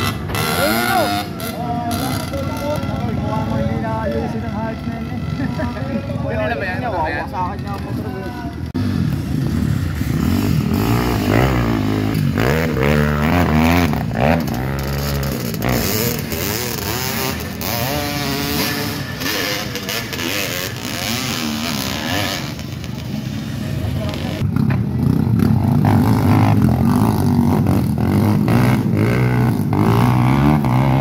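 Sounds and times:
dirt bike engines revving: 0:00.0 - 0:31.0.

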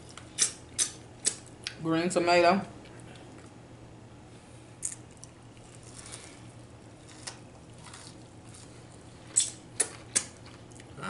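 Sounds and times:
faint low hum: 0:00.0 - 0:11.0
chewing and handling food: 0:02.8 - 0:03.6, 0:04.8 - 0:11.0.

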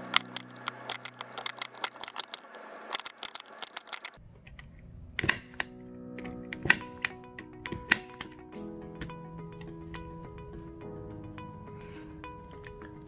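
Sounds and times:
background music: 0:00.0 - 0:02.4, 0:05.2 - 0:13.0.

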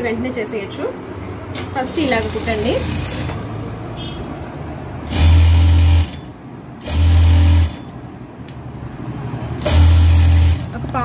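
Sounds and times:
sewing machine stitching: 0:01.7 - 0:03.5, 0:05.1 - 0:07.9, 0:09.6 - 0:10.9.

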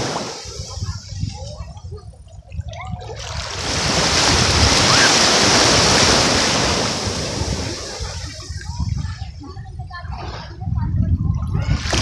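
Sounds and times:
wind buffeting microphone: 0:00.0 - 0:12.0
small wave breaking on sand: 0:03.4 - 0:08.4.

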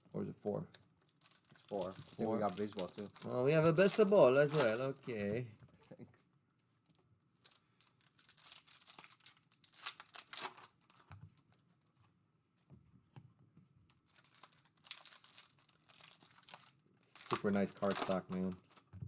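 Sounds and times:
foil wrapper tearing and crinkling: 0:01.0 - 0:05.2, 0:07.4 - 0:11.1, 0:13.9 - 0:18.9.

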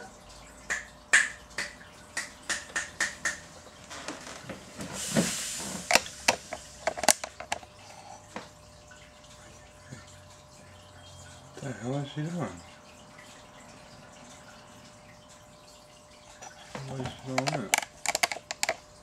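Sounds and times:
brief hiss: 0:05.0 - 0:05.9
clicks and knocks on glass terrarium: 0:16.4 - 0:18.8.

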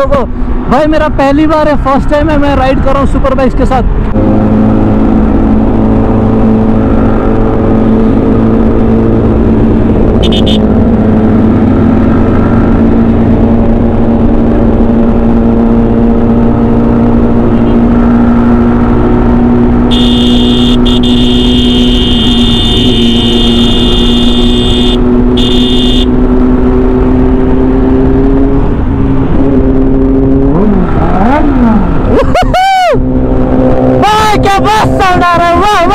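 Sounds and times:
motorcycle engine cruising: 0:03.8 - 0:35.9
high steady tone: 0:19.9 - 0:26.1.

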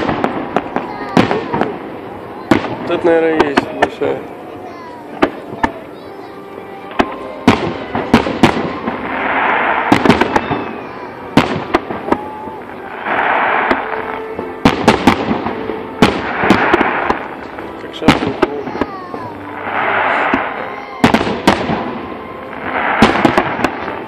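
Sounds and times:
fireworks bangs and pops: 0:00.0 - 0:04.2, 0:05.1 - 0:05.8, 0:06.9 - 0:24.0
fireworks hiss: 0:12.6 - 0:21.9, 0:22.5 - 0:24.0.

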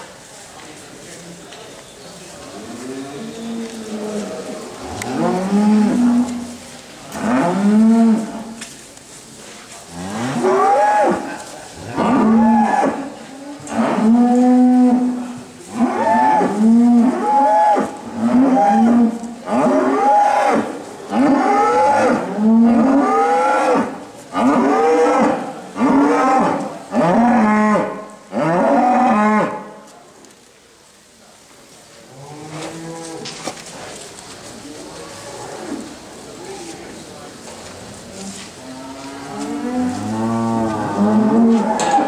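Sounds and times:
cows mooing: 0:38.6 - 0:42.0.

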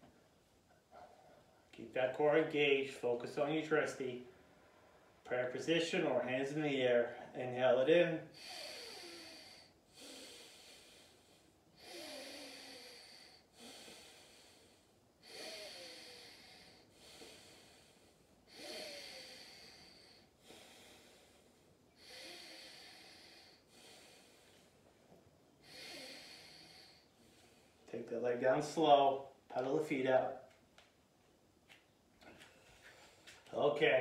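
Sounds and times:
faint slow breathing: 0:08.2 - 0:27.9.

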